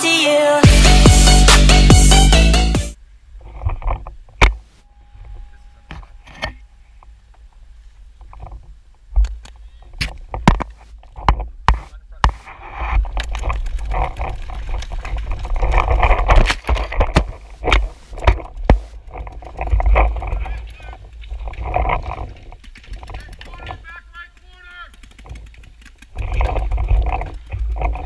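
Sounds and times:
paintball markers firing: 22.6s - 26.2s.

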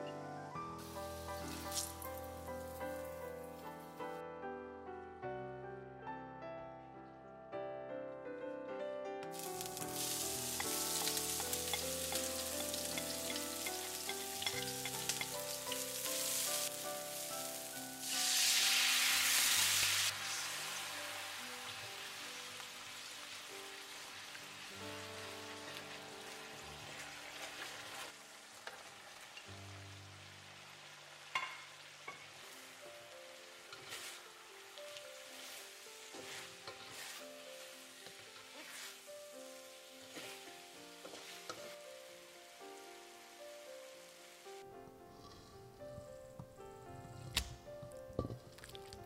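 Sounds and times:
soft piano music: 0.0s - 28.2s, 29.4s - 49.0s
food sizzling in hot oil: 0.8s - 3.8s, 9.3s - 44.6s
spatula stirring in a wok: 9.7s - 16.8s, 33.7s - 39.4s, 40.0s - 41.8s.

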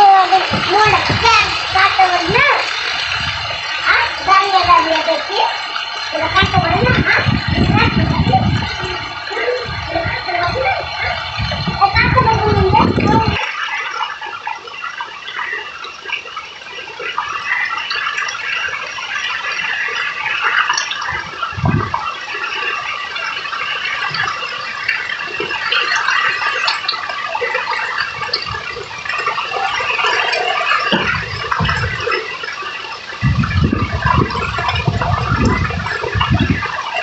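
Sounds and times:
wind rumble on microphone: 0.0s - 13.4s, 21.0s - 22.9s, 28.0s - 32.4s, 33.1s - 37.0s
heavy rain on trees: 0.0s - 37.0s.

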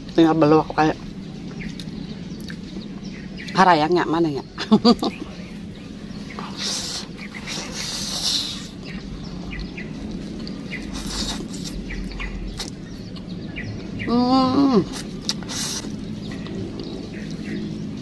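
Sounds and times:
chewing: 6.3s - 13.4s, 14.9s - 17.8s.

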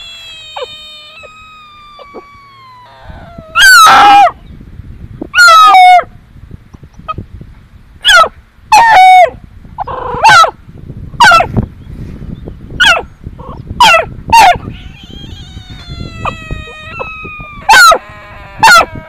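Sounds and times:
bullfrog distress screams: 0.0s - 4.4s, 14.4s - 19.0s
drawn-out tone: 0.0s - 4.4s.

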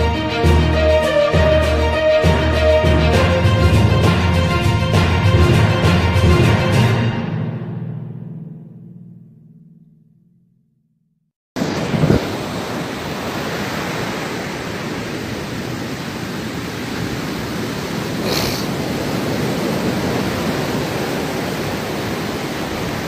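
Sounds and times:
surf breaking: 11.6s - 23.0s
wind rushing: 11.6s - 23.0s.

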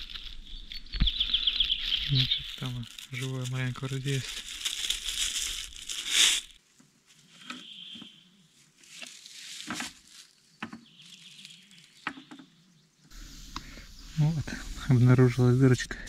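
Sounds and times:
rustling: 0.0s - 7.8s, 8.4s - 15.8s
short air hisses: 13.1s - 15.7s.

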